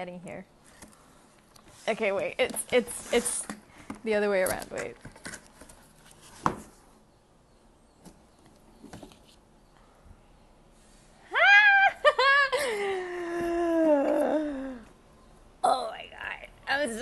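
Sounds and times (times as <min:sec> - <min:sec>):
woman squealing: 0:11.3 - 0:12.7.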